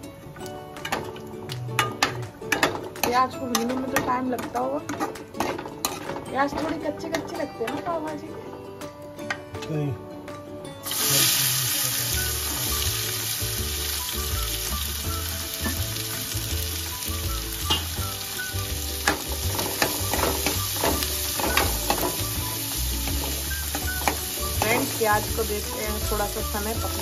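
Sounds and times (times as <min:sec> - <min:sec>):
onions sizzling in oil: 0:10.8 - 0:27.0.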